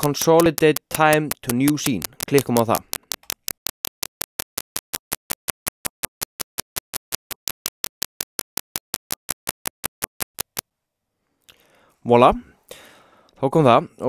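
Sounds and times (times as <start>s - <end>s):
rapid digital clicks: 0.0s - 10.6s.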